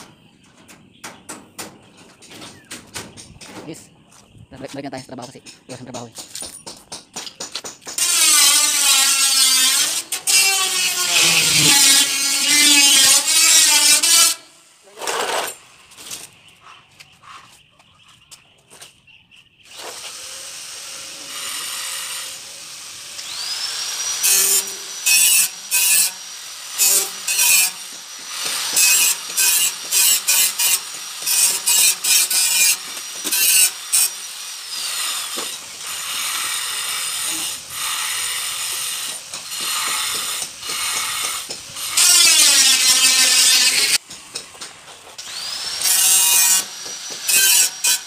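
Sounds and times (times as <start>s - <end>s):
power tool motor whining: 8.0s - 14.4s, 19.7s - 44.0s, 45.2s - 48.0s.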